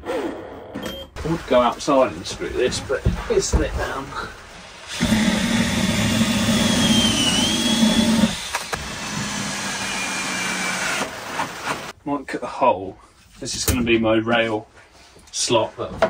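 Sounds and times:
power drill driving screws: 0:04.8 - 0:11.9.

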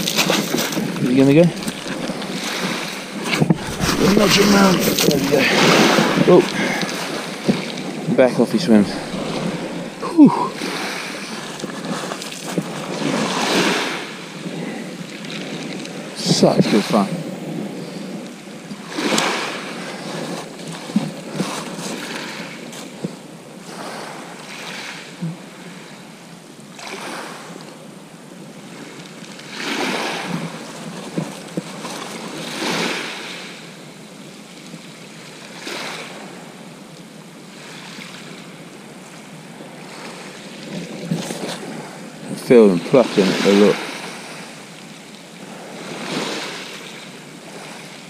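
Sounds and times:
waves washing up shingle: 0:00.0 - 0:18.2, 0:18.8 - 0:25.1, 0:39.7 - 0:44.8
wind on microphone: 0:00.0 - 0:18.4.

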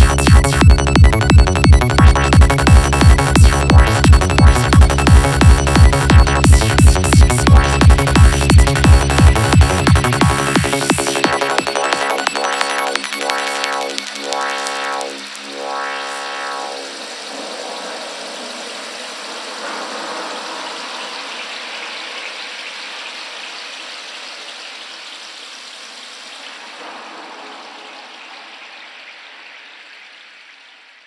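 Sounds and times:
rushing hiss-like noise: 0:16.6 - 0:31.0.

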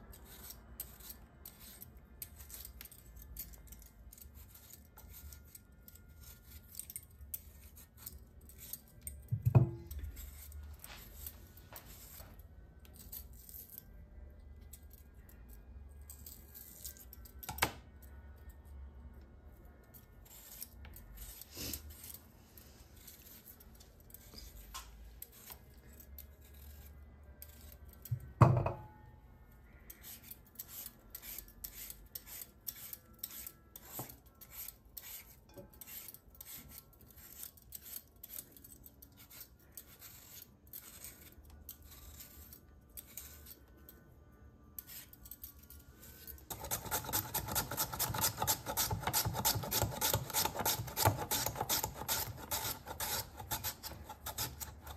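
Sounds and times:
vegetable peeler scraping potatoes: 0:00.0 - 0:09.2, 0:09.9 - 0:13.8, 0:20.2 - 0:22.3, 0:29.9 - 0:43.7, 0:44.8 - 0:54.9.

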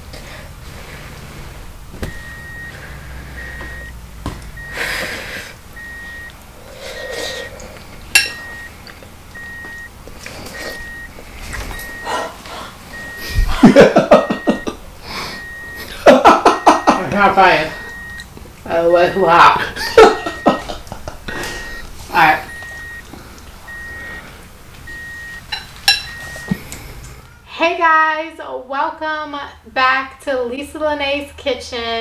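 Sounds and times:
electronic beeper beeping: 0:02.1 - 0:03.9, 0:04.6 - 0:04.9, 0:05.8 - 0:06.3, 0:08.2 - 0:08.7, 0:09.4 - 0:09.9, 0:10.6 - 0:11.1, 0:11.7 - 0:12.2, 0:12.9 - 0:13.4, 0:15.3 - 0:15.9, 0:16.5 - 0:20.7, 0:21.4 - 0:23.1, 0:23.7 - 0:24.2, 0:24.9 - 0:26.6.

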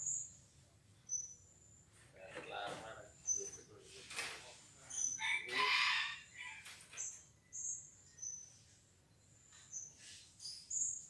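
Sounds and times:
bird high-pitched chirps: 0:01.1 - 0:01.4, 0:07.0 - 0:08.6.

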